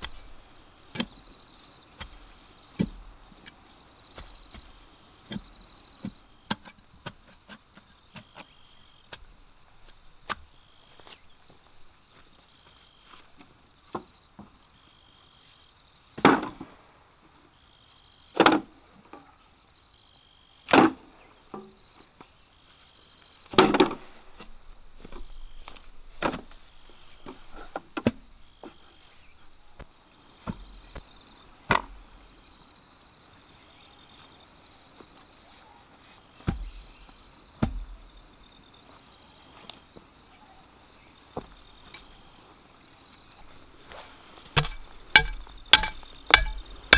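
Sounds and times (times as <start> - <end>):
digging bar jabbing into soil: 0.0 - 1.3, 1.9 - 11.3, 43.9 - 46.9
insects chirping: 0.0 - 46.9
knocks on bamboo poles: 44.6 - 46.9.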